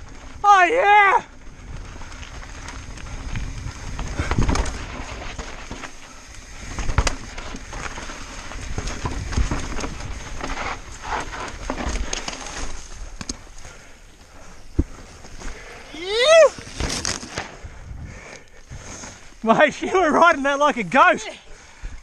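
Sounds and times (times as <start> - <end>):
bike knocking and rattling: 0.0 - 17.8
tyres crunching over dirt and rock: 0.0 - 20.9
wind rumble on microphone: 1.3 - 5.7, 6.4 - 11.9, 17.5 - 19.0.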